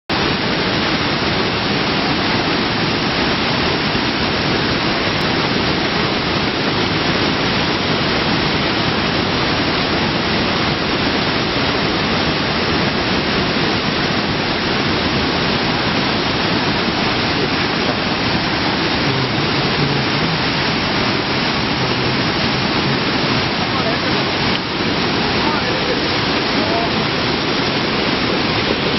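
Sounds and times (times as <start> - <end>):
waterfall rushing over boulders: 0.1 - 28.9.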